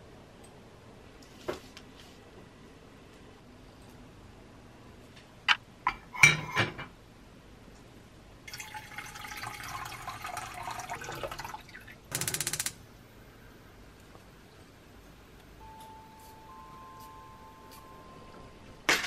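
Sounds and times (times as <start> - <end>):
water pouring into pan: 8.5 - 11.9.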